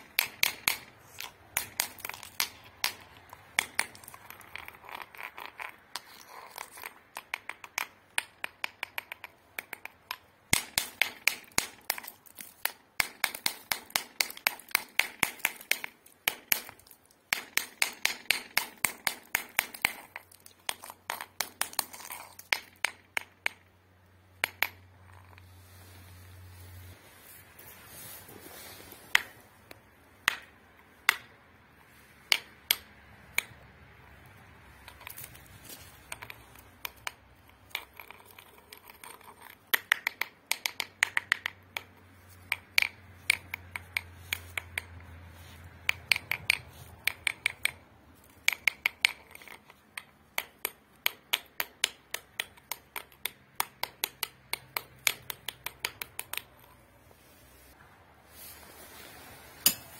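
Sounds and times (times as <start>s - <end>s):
pick striking gravel: 34.7s - 39.8s, 54.7s - 59.9s.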